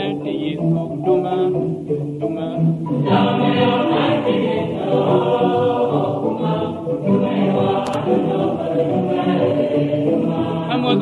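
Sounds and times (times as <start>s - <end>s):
choir singing a hymn: 2.6s - 11.0s.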